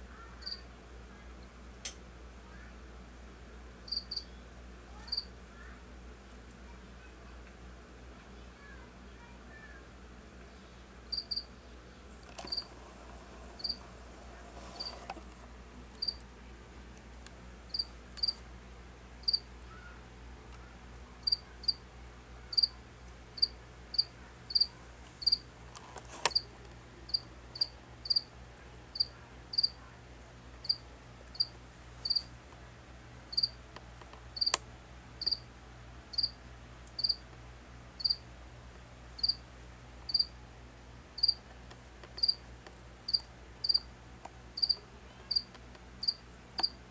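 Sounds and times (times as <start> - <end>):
cricket chirping: 3.9 - 4.3, 11.1 - 11.4, 21.2 - 21.8, 22.5 - 22.7, 31.4 - 32.2, 33.3 - 33.6, 36.1 - 36.4, 37.0 - 37.2, 38.0 - 38.2, 39.2 - 39.4, 40.1 - 40.3, 41.2 - 41.4, 42.2 - 42.4, 43.1 - 43.8, 44.6 - 45.4.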